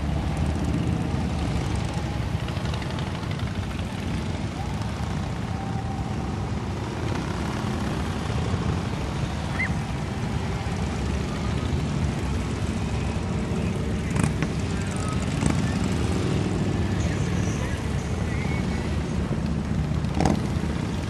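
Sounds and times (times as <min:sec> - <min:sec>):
motorcycles rumbling past: 0:00.0 - 0:21.0.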